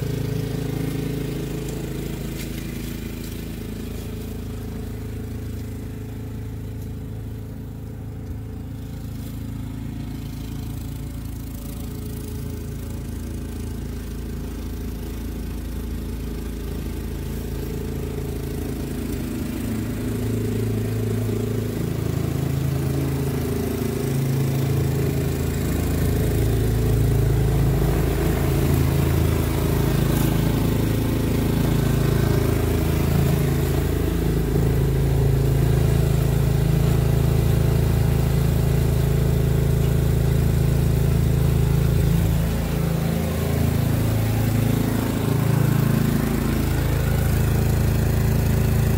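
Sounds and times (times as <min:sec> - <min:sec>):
snowblower engine running: 0:00.0 - 0:48.9.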